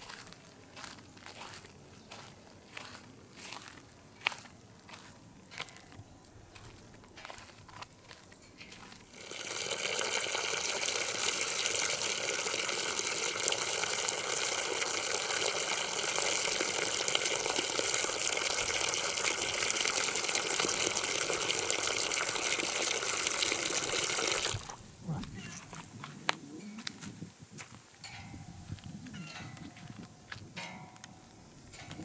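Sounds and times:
water pouring into basin: 9.1s - 24.8s.

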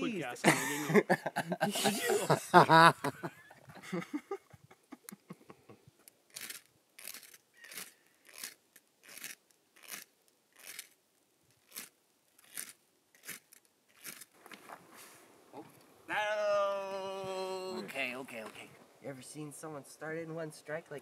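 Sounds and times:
striker scraping fire starter rod: 11.6s - 14.3s.

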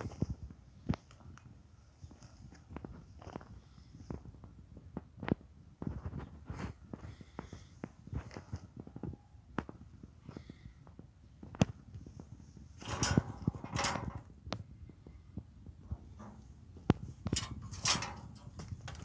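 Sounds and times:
rustling scrape: 16.0s - 19.0s.

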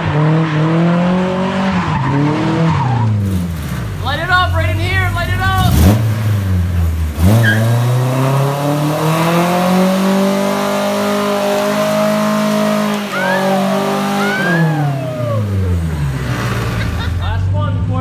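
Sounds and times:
car engine revving hard: 0.0s - 3.9s, 5.6s - 17.3s
tyres squealing: 7.4s - 7.7s, 12.9s - 15.8s.

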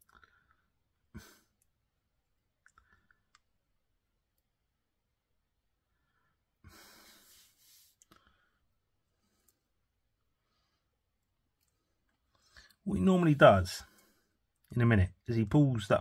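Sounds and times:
soft breath-like hiss: 6.0s - 9.7s.

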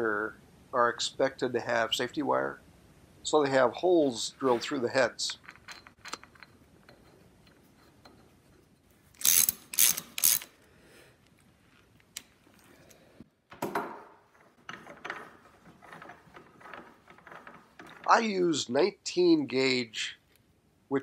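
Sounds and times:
socket ratchet clicking: 9.2s - 10.5s.

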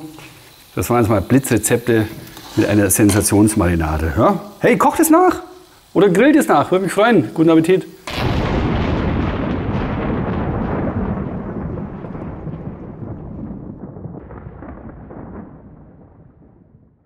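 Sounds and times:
thunder crash and rumble: 8.1s - 17.0s.

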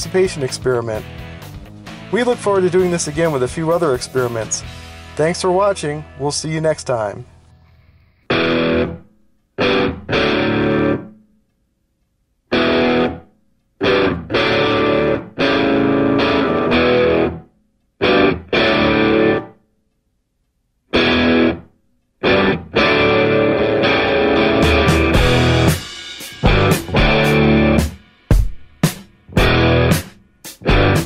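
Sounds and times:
background music: 0.0s - 7.7s, 22.3s - 31.0s.

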